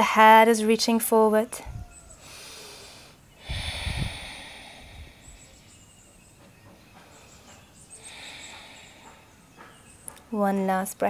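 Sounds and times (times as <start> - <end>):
person breathing: 2.1 - 6.2, 7.1 - 9.8.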